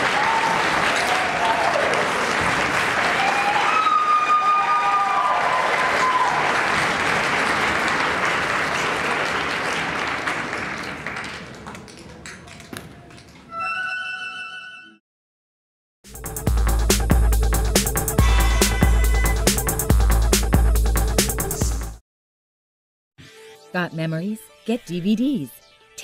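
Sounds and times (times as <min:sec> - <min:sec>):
audience applause: 0:00.0 - 0:13.3.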